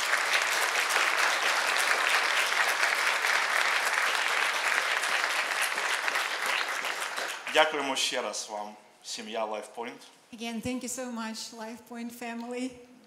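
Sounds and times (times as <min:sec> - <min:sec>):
congregation applauding: 0:00.0 - 0:08.2.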